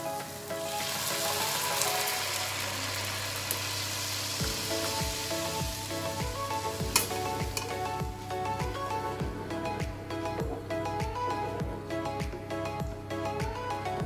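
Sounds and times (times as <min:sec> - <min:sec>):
background music: 0:00.0 - 0:14.0
oil sizzling in frying pan: 0:00.2 - 0:07.8
steady beat: 0:04.4 - 0:14.0.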